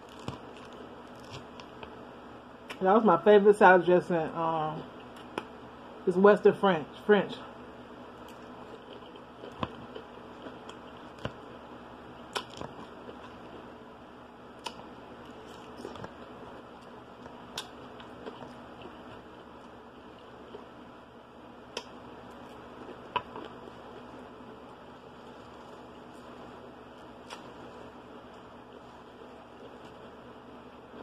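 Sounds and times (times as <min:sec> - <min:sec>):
person chewing salad: 0:08.2 - 0:11.4, 0:12.1 - 0:13.7, 0:14.6 - 0:20.8, 0:21.7 - 0:24.2, 0:27.0 - 0:30.1.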